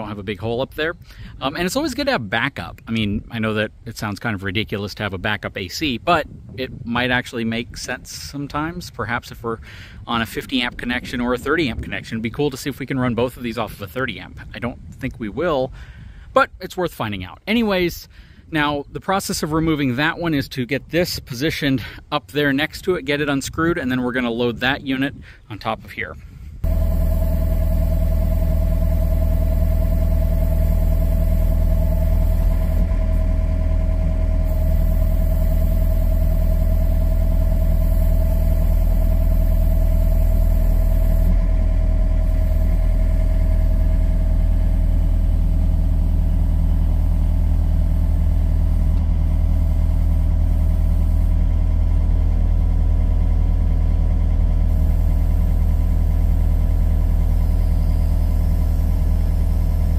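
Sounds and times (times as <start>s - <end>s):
diesel engine running: 26.6s - 59.9s
hydraulic whine: 26.6s - 59.9s.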